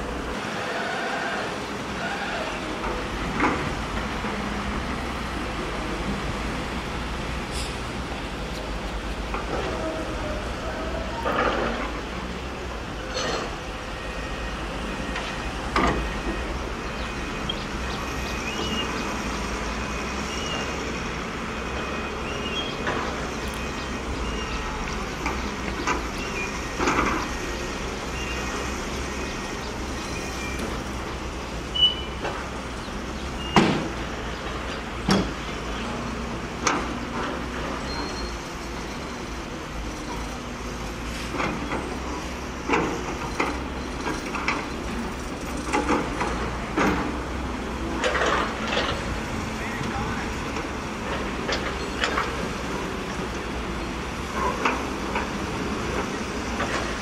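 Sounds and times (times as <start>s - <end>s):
diesel truck engines running: 0.0s - 57.0s.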